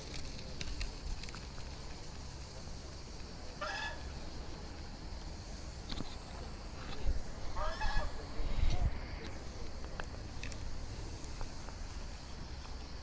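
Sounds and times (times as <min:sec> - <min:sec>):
bird call: 0:03.5 - 0:04.2.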